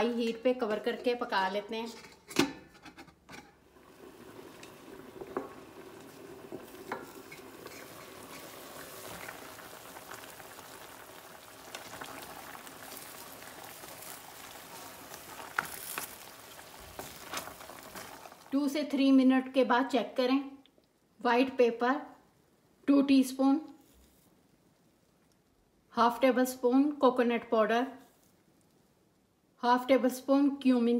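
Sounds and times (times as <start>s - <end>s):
lid and pan clicks: 2.0s - 3.6s
water boiling in pan: 3.3s - 19.0s
spatula stirring against pan: 4.1s - 9.4s, 13.7s - 18.4s.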